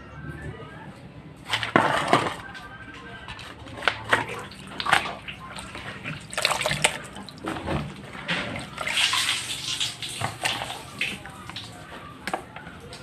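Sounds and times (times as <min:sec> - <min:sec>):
water splashing and sloshing: 0:03.3 - 0:13.0.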